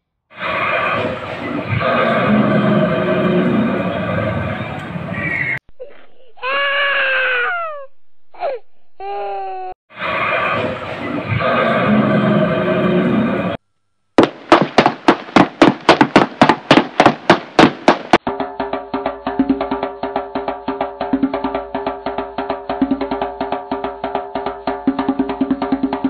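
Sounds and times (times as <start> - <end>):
steady knocking: 14.2 - 18.2
fast-paced cartoon music: 18.2 - 26.0.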